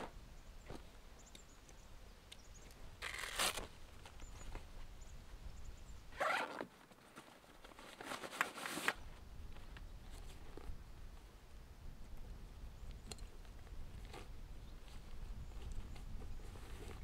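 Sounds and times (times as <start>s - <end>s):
bag zip rasping open: 3.0s - 3.7s, 6.2s - 6.7s.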